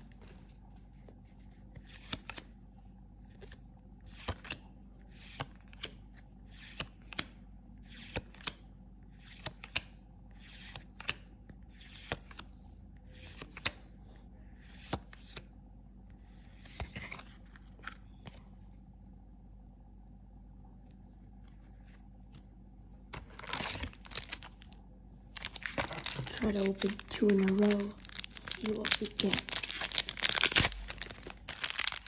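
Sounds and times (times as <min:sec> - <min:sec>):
cards rustling: 0:21.3 - 0:32.0.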